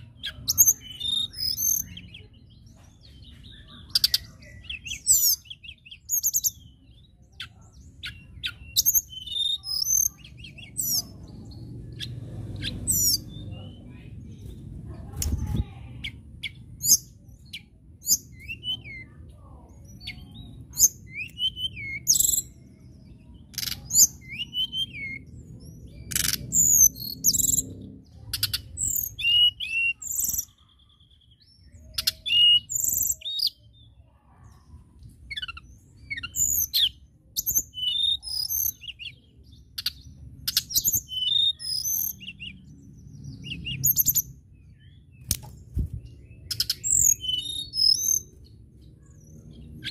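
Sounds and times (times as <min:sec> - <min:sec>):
bird singing whistled phrases: 0:00.2 - 0:02.3, 0:08.0 - 0:11.1, 0:16.0 - 0:19.2, 0:20.0 - 0:22.6, 0:23.6 - 0:25.3, 0:28.3 - 0:30.6, 0:31.3 - 0:33.6, 0:35.3 - 0:42.7, 0:43.3 - 0:45.2, 0:46.3 - 0:48.3.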